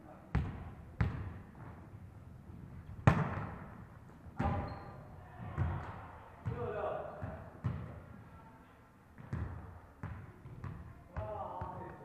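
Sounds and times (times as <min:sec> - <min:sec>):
volleyball being struck: 0:03.0 - 0:03.7.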